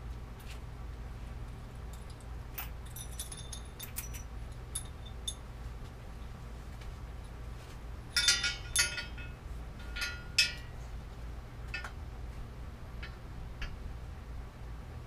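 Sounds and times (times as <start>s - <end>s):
bicycle parts clinking: 1.9s - 5.4s, 8.1s - 10.8s.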